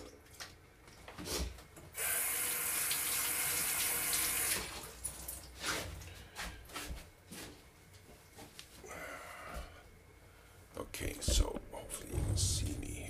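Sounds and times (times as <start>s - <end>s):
water running into sink: 2.0s - 5.5s.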